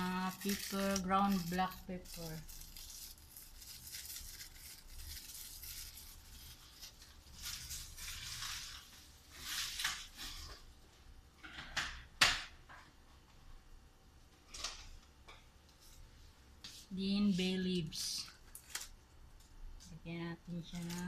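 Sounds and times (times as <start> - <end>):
plastic packet crinkling: 0.0 - 10.6, 17.9 - 21.0.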